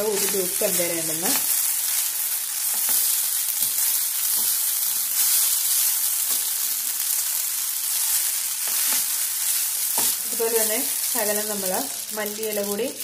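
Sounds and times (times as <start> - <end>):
food sizzling in a frying pan: 0.0 - 13.0.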